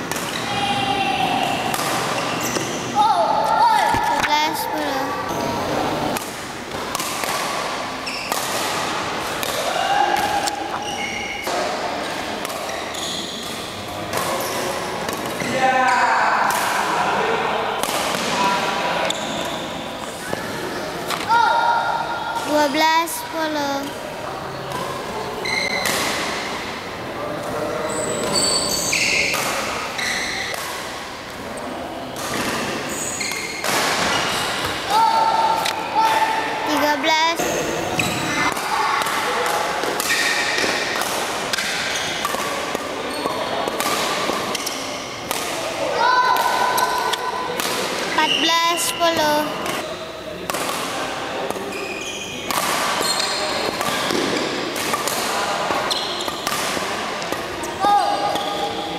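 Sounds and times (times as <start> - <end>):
shoes squeaking on court floor: 2.0 - 3.0, 8.0 - 8.6, 10.4 - 14.7, 24.5 - 26.0, 27.8 - 30.6, 32.3 - 34.7, 43.0 - 45.1, 48.1 - 49.9, 51.6 - 55.0, 55.7 - 56.6
racket hitting shuttlecock: 6.2 - 10.8, 38.5 - 45.7, 49.6 - 51.6, 52.4 - 53.0, 53.6 - 57.6.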